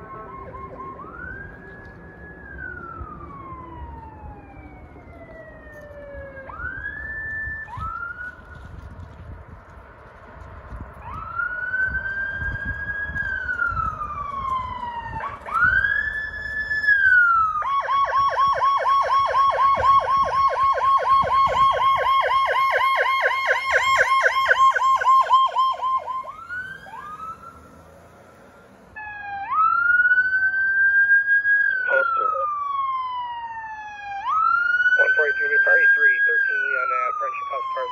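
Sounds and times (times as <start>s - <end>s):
emergency vehicle siren: 0.0s - 37.9s
low traffic rumble: 0.0s - 37.9s.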